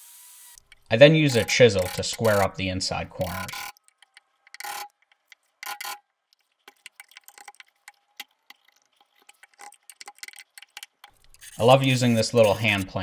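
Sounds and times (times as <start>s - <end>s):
chisel scraping wood: 8.9s - 13.0s.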